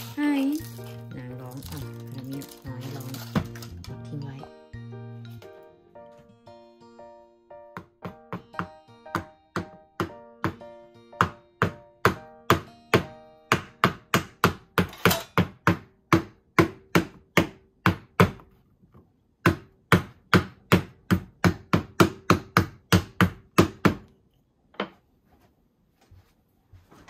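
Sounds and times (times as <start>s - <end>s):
rolling pin knocking on cutting board: 7.7s - 18.5s.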